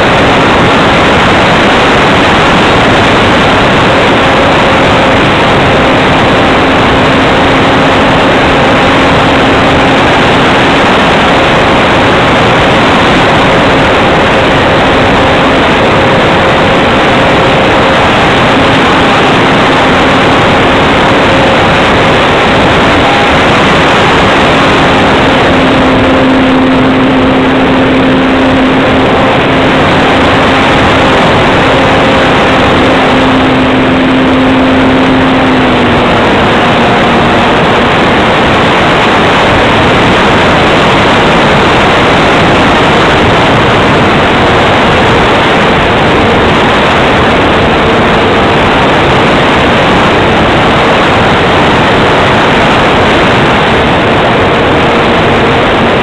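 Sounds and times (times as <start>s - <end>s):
faint steady motor tone: 0.0s - 56.0s
wind and propeller noise: 0.0s - 56.0s.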